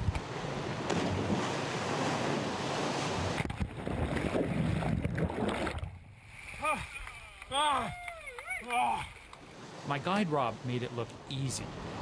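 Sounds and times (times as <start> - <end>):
underwater rushing and bubbling: 0.0 - 7.1
seawater rushing and splashing: 0.2 - 12.0.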